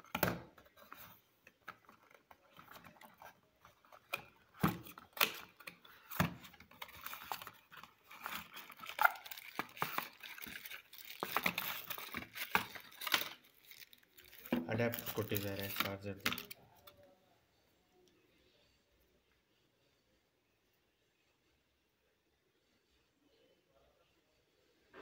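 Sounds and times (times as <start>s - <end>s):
plastic packaging crinkling: 1.8s - 16.9s.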